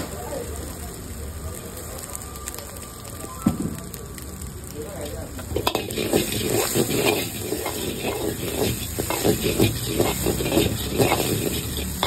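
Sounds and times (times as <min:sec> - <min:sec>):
food sizzling in a wok: 0:00.0 - 0:12.0
ladle scraping and clattering in wok: 0:05.4 - 0:12.0.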